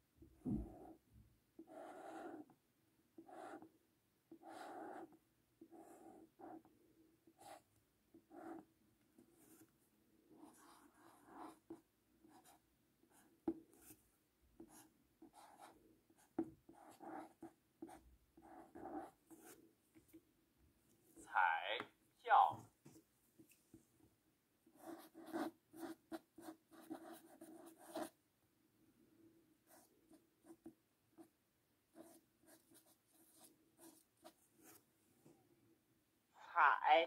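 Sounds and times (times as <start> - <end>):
marker writing on paper: 1.6 - 2.5, 3.2 - 3.7, 4.3 - 9.7, 10.3 - 14.0, 14.6 - 20.2, 24.7 - 28.2, 29.7 - 31.3, 31.9 - 34.9.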